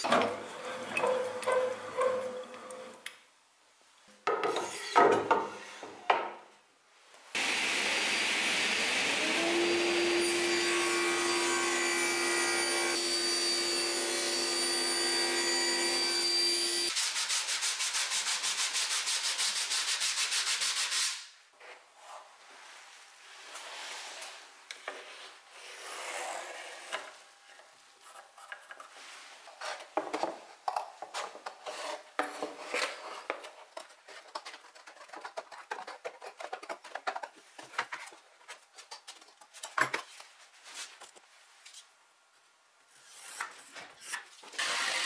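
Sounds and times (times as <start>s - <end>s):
table saw cutting wood: 7.4s - 17.0s, 44.6s - 45.0s.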